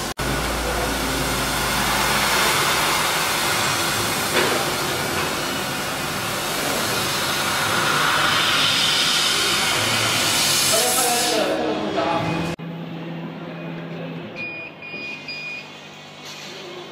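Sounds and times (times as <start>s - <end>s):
laser cutter gas hiss: 0.0s - 12.5s.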